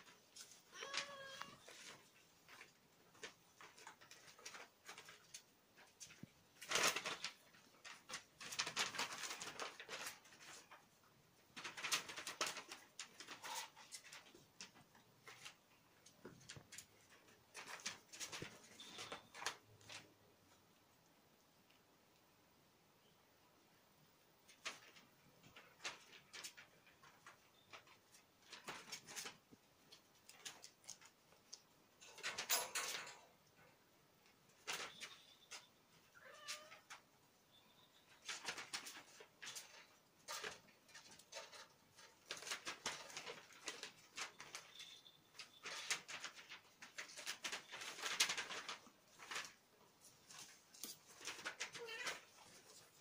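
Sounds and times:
kittens scuffling: 0.0s - 21.9s, 24.1s - 53.0s.

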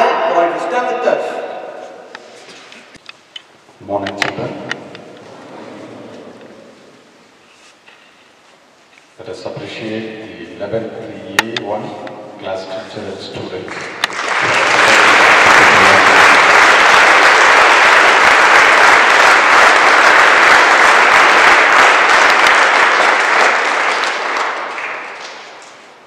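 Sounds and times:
audience applauding: 13.6s - 26.0s.

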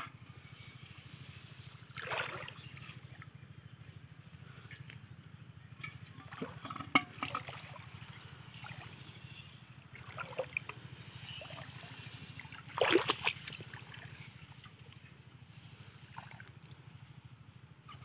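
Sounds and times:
water splashing from wading: 1.6s - 3.3s, 6.1s - 9.2s, 9.8s - 15.0s, 16.1s - 16.8s.

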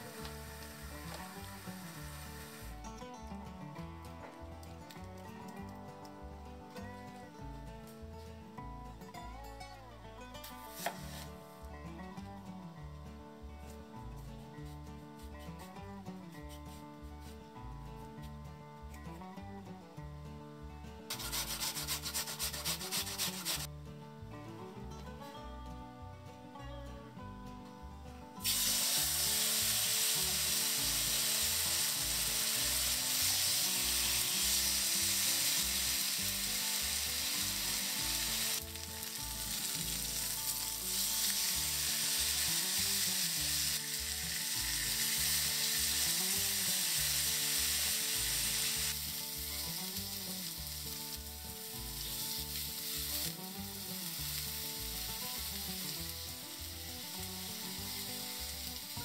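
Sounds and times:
meat sizzling in a pan: 0.0s - 2.8s, 10.6s - 11.4s, 21.1s - 23.7s, 28.4s - 59.0s
quiet background music: 0.0s - 59.0s.

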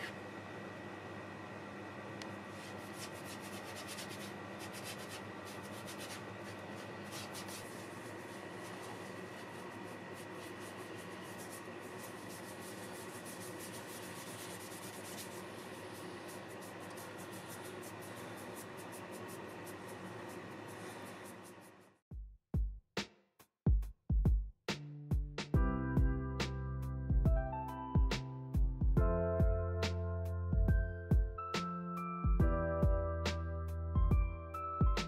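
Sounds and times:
steady low hum: 0.0s - 21.8s
brush scrubbing wood: 2.5s - 21.8s.

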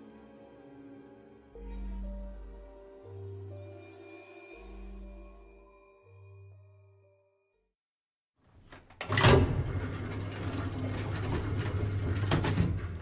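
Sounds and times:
elevator door clattering shut: 9.0s - 13.0s
elevator humming and rattling: 9.0s - 13.0s.

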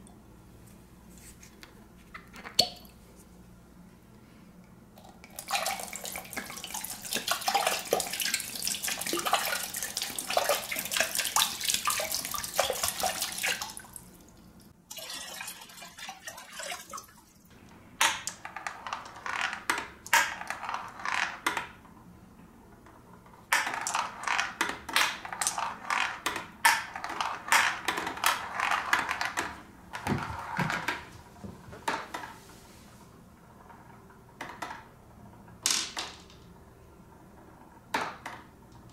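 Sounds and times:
marbles clicking and splashing: 5.2s - 14.0s
water pouring into glass tank: 14.9s - 17.2s.

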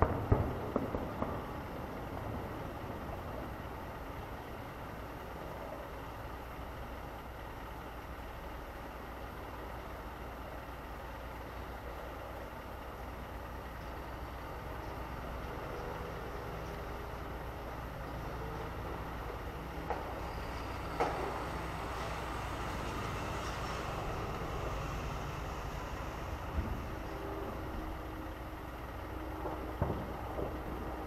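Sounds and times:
truck engines rumbling: 0.0s - 31.0s.

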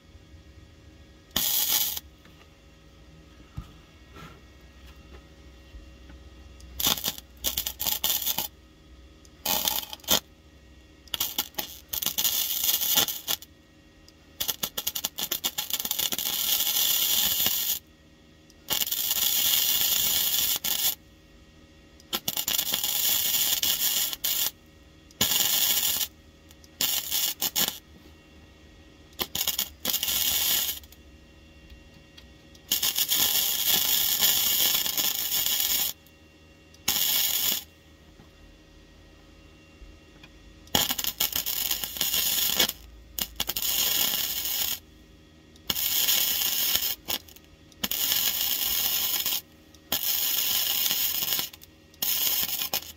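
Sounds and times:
welder crackling: 1.3s - 2.1s, 6.6s - 8.6s, 9.2s - 10.3s, 11.0s - 13.5s, 14.4s - 17.9s, 18.6s - 21.0s, 22.0s - 27.8s, 29.2s - 31.0s, 32.5s - 36.0s, 36.8s - 37.7s, 40.7s - 44.8s, 45.6s - 52.9s.

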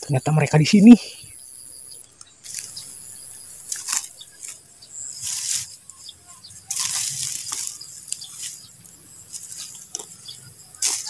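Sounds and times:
faint insect drone: 0.0s - 11.0s
leaves rustling and crackling: 2.4s - 11.0s.

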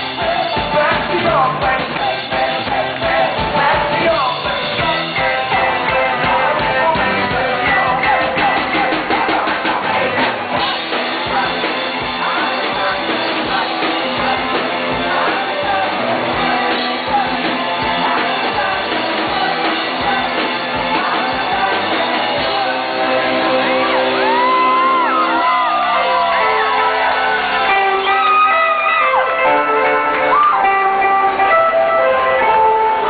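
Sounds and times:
drum beat: 0.0s - 23.0s
electric guitar: 0.0s - 33.0s
person singing: 0.0s - 33.0s.

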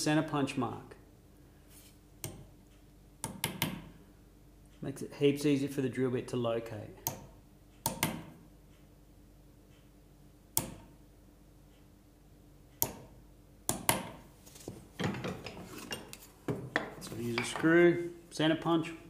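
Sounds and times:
hammer tapping steel punch: 3.2s - 3.9s, 7.0s - 8.4s, 10.6s - 11.0s, 12.8s - 14.2s
knocks and rubbing: 14.6s - 17.8s.

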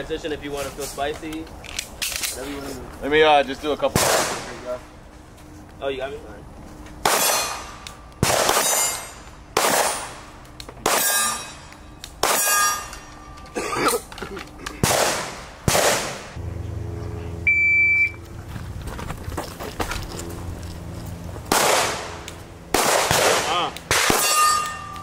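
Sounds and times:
steady hum: 4.5s - 25.0s
handgun shots: 7.0s - 10.2s, 10.8s - 11.4s, 12.1s - 12.6s, 14.8s - 16.3s, 21.5s - 24.8s.

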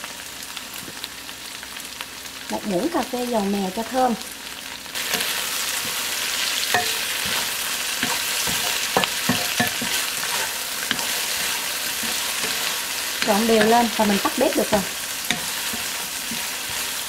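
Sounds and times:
food sizzling in a wok: 0.0s - 17.0s
wooden spatula scraping a pan: 5.0s - 17.0s.

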